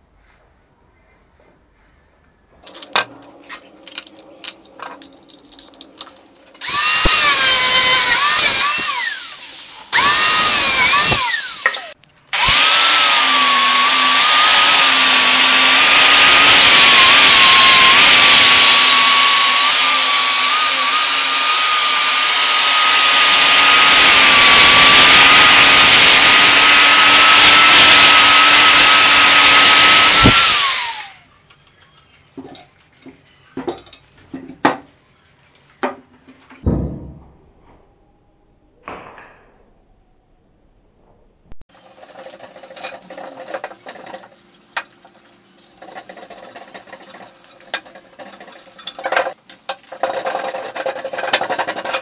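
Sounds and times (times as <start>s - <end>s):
angle grinder grinding steel: 2.7s - 31.3s, 41.7s - 52.0s.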